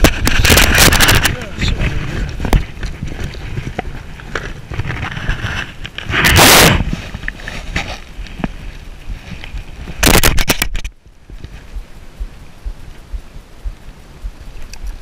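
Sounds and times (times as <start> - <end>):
low rumble: 11.0 - 15.0.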